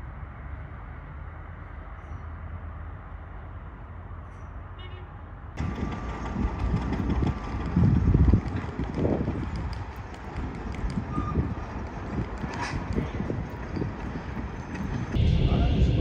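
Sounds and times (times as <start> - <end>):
low gusty rumble: 5.6 - 16.0.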